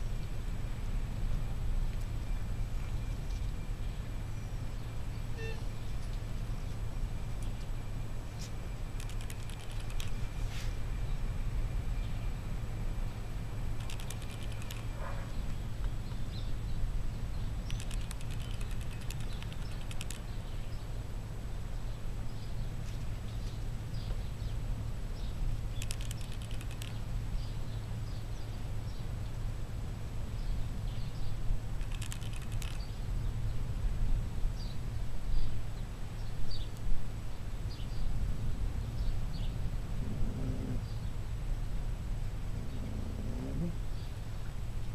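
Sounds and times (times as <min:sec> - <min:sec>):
low hum: 0:00.0 - 0:44.9
steady low rumble: 0:00.0 - 0:44.9
small birds chirping: 0:08.3 - 0:10.4, 0:13.8 - 0:21.0, 0:25.2 - 0:29.1, 0:30.4 - 0:33.6.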